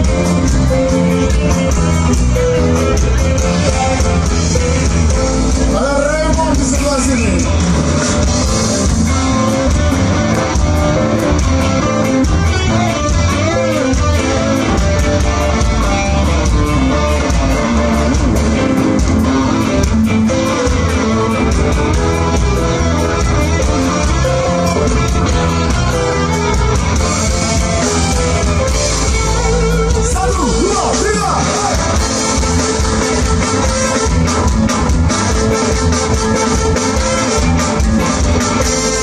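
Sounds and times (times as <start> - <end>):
ska band playing live: 0.0 - 39.0.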